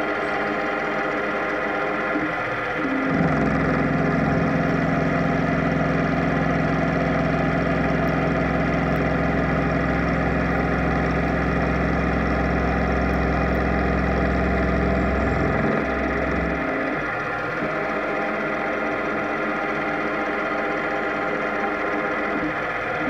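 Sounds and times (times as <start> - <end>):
milling machine drone: 0.0 - 23.0.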